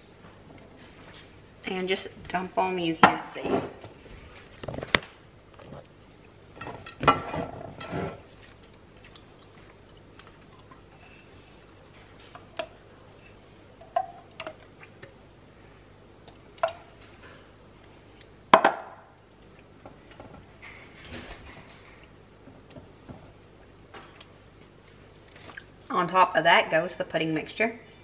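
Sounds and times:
dishes clattering: 0:06.6 - 0:08.2.

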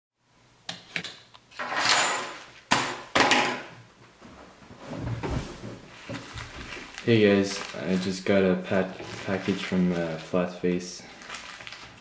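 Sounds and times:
envelope rustling: 0:05.6 - 0:10.4, 0:11.0 - 0:12.0.

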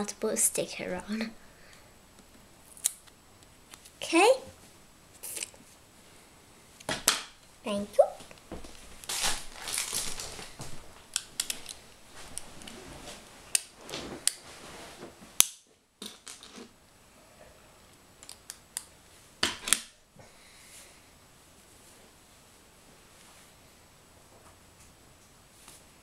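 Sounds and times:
plastic pieces clicking: 0:11.1 - 0:11.8.

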